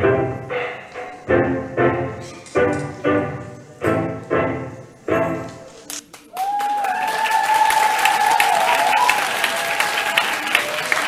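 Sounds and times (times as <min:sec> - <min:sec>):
dance music: 0:00.0 - 0:06.1
audience applause: 0:06.1 - 0:11.0
person cheering: 0:06.3 - 0:10.0.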